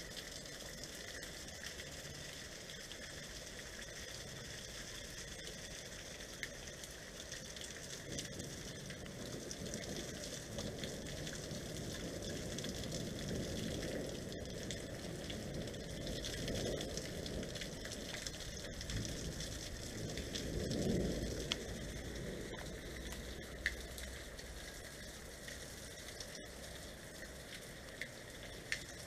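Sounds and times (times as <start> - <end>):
hail and rain falling: 0.0 - 29.0.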